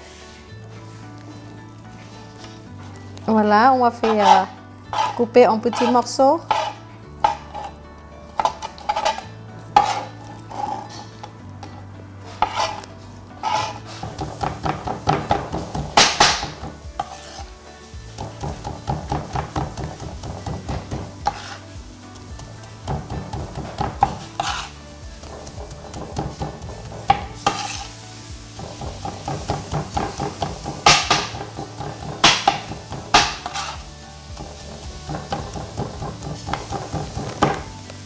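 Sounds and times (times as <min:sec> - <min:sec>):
cleaver chopping on cutting board: 0:13.5 - 0:17.4, 0:28.6 - 0:33.8, 0:35.1 - 0:37.7.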